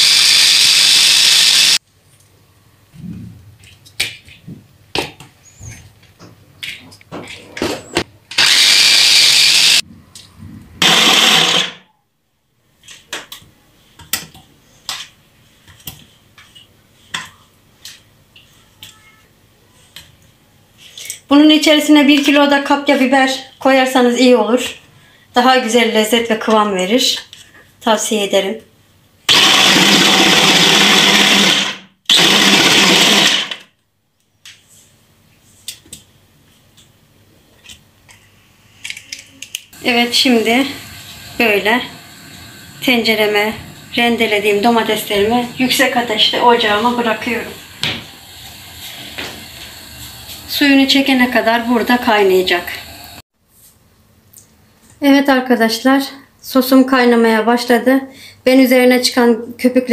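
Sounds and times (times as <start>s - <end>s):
electric hand blender chopping: 0.0s - 1.8s, 8.4s - 9.8s, 10.8s - 11.8s, 29.3s - 33.6s, 44.3s - 50.4s
food chopper motor running: 0.0s - 1.8s, 8.4s - 9.8s, 10.8s - 11.8s, 29.3s - 33.6s, 39.8s - 43.4s.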